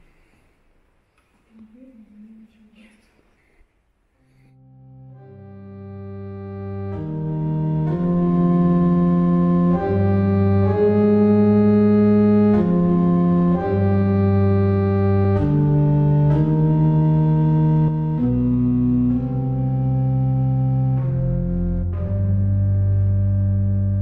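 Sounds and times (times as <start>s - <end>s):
organ playing sustained chords: 4.6s - 24.0s.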